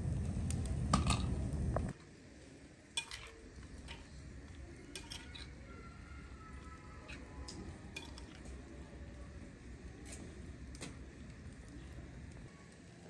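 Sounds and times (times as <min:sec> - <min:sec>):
bonfire burning and crackling: 0:00.0 - 0:13.0
metal dishes clinking: 0:03.0 - 0:04.1, 0:04.9 - 0:05.5, 0:07.9 - 0:08.4.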